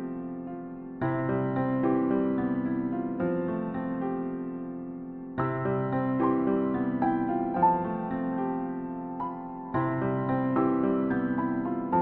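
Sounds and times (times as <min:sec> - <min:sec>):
keyboard melody: 0:04.0 - 0:12.0.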